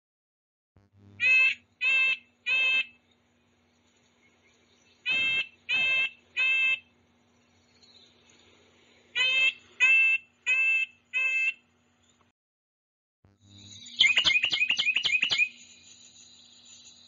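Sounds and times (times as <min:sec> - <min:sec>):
nuthatch short calls: 0:13.8 - 0:15.6.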